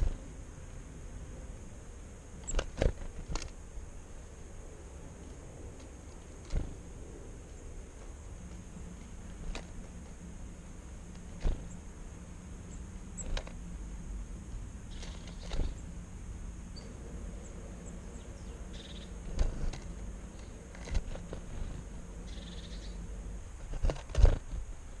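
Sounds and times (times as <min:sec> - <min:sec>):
faint bird calls: 0:14.8 - 0:16.0, 0:16.7 - 0:23.3.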